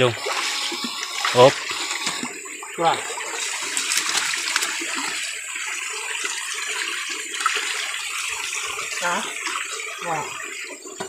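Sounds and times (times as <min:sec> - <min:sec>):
stream water rushing: 0:00.0 - 0:10.8
sharp splashes: 0:03.0 - 0:05.2.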